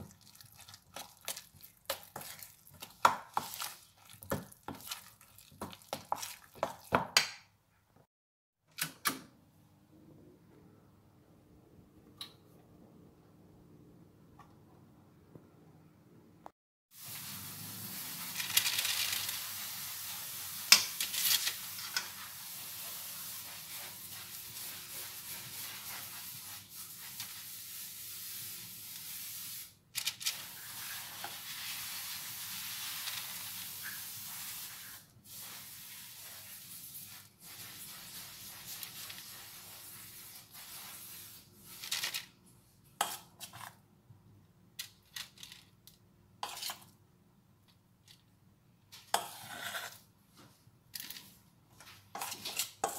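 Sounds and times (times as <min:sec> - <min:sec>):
metal spoon scraping steel bowl: 0:46.4 - 0:46.8, 0:49.0 - 0:50.0, 0:52.1 - 0:52.9.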